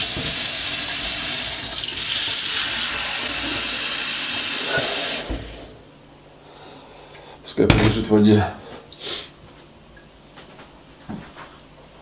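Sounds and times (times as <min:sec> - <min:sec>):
tap water running into bowl: 0:00.0 - 0:05.8.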